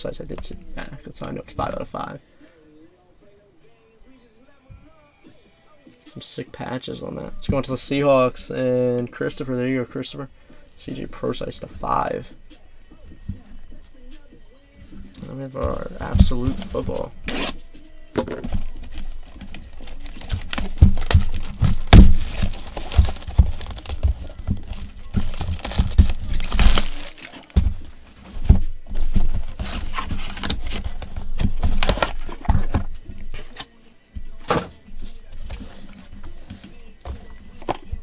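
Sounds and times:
plastic wrapper crinkling and tearing: 19.2 - 27.6.

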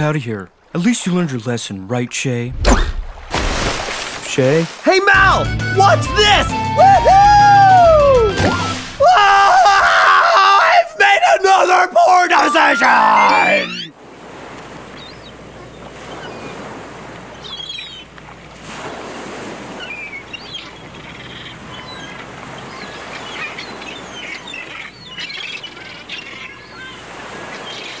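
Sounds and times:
waves washing: 2.5 - 9.8, 10.8 - 28.0
birds chirping: 5.0 - 9.0, 9.7 - 14.0, 14.8 - 18.3, 19.7 - 28.0.

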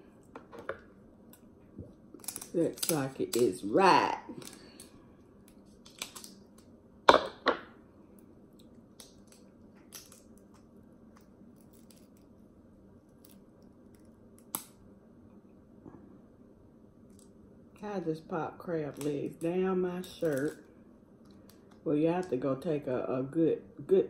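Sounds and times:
shell cracking by hand: 4.4 - 6.7, 8.5 - 12.3, 13.1 - 14.8.

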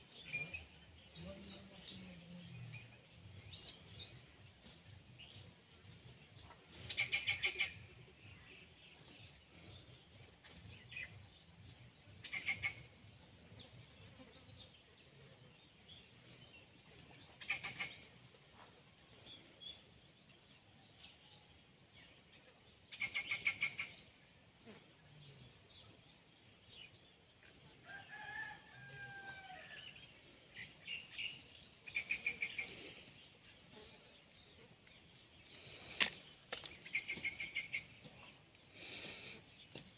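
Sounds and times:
faint outdoor ambience: 0.0 - 39.9
rooster crowing: 27.8 - 29.8.

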